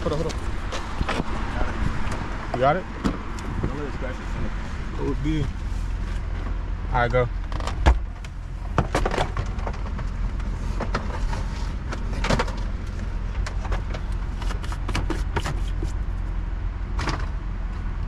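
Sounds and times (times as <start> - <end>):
steady low rumble: 0.0 - 14.6
plastic bumper knocking and scraping: 7.5 - 10.0.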